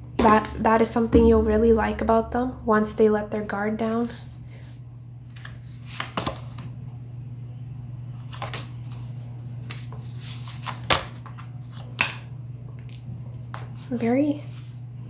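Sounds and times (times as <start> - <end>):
steady low hum: 0.0 - 15.0
cards snapping and sliding on table: 5.3 - 6.7.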